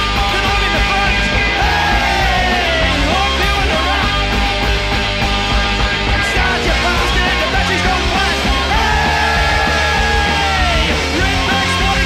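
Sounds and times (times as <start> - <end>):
punk rock band: 0.0 - 12.0
shouted vocal: 1.1 - 4.0, 7.3 - 12.0.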